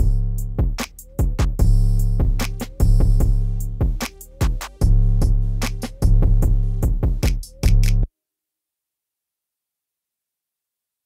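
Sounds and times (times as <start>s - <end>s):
music track: 0.0s - 8.1s.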